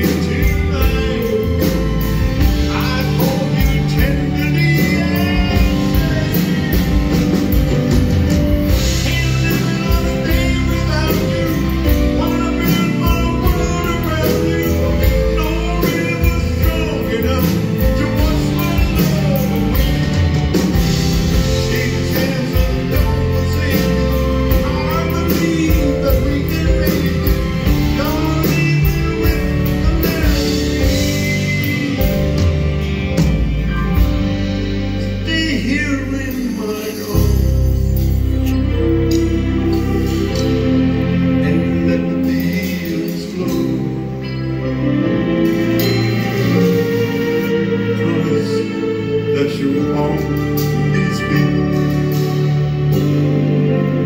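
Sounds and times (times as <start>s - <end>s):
backing band with electric guitar: 0.0s - 54.0s
man singing: 0.0s - 54.0s.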